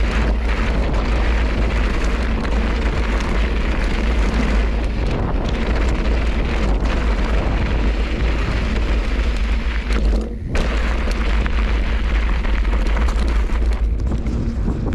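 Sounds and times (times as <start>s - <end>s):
tyres on gravel: 0.0s - 14.9s
wind buffeting microphone: 0.0s - 14.9s.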